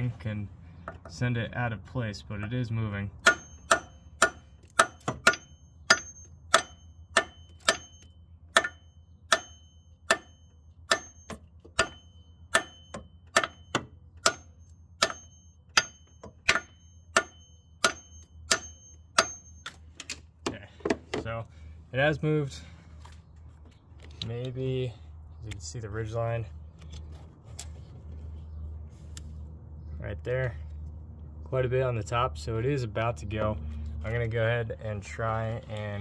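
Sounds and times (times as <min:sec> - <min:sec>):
hammer striking metal: 0:03.2 - 0:19.8.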